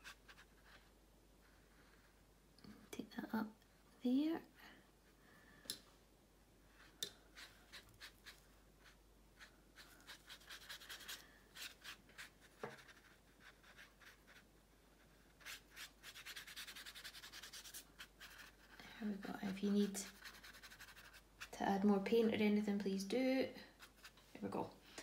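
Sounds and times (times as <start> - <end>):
paintbrush strokes on paper: 0.0 - 2.2, 6.7 - 21.6, 23.7 - 24.6.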